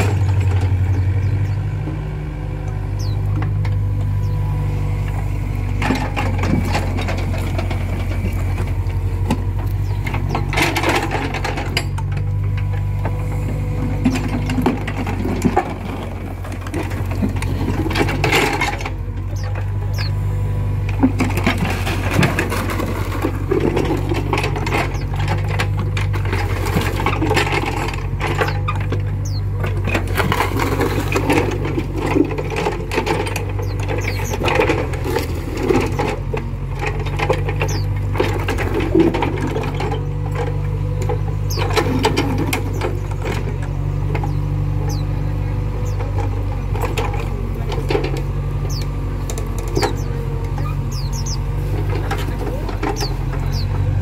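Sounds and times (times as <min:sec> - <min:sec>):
excavator diesel engine running: 0:00.0 - 0:54.0
metal clanks and knocks: 0:05.1 - 0:20.1, 0:20.9 - 0:45.0, 0:45.8 - 0:54.0.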